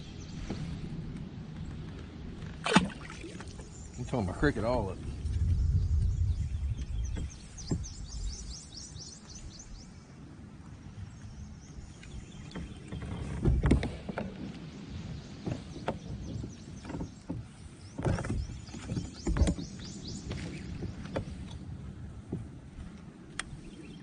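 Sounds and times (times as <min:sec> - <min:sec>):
fishing line cast: 0:02.6 - 0:03.7
knocks in a boat: 0:07.0 - 0:08.0, 0:12.4 - 0:14.6, 0:15.4 - 0:21.5.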